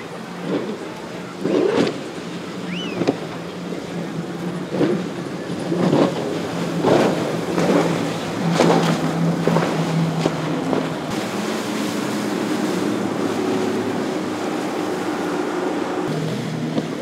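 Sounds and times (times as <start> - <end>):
powerboat engines droning: 0.0 - 17.0
water rushing: 0.0 - 17.0.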